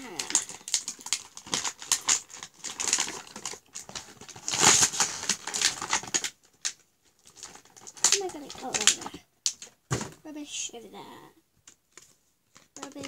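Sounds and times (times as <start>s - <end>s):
packaging rustling and crinkling: 0.0s - 10.2s, 11.6s - 13.0s.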